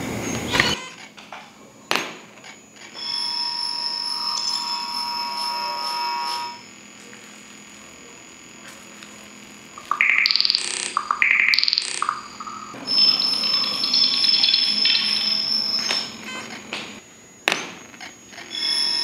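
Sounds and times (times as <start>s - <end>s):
faint hum: 0.0s - 19.0s
loud electronic beeps: 0.5s - 1.1s, 1.9s - 6.9s, 9.7s - 19.0s
steady electronic tone: 2.5s - 19.0s.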